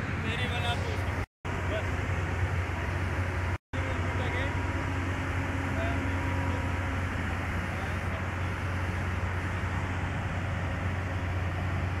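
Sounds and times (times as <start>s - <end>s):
machinery humming: 0.0s - 12.0s.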